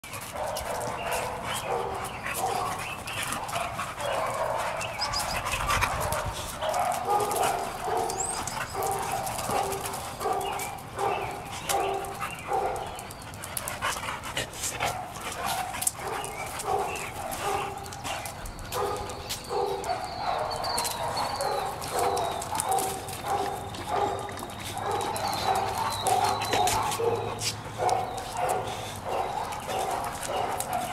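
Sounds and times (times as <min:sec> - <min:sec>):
dog barking: 0:00.4 - 0:02.8, 0:06.6 - 0:12.9, 0:14.9 - 0:17.8, 0:18.8 - 0:30.9.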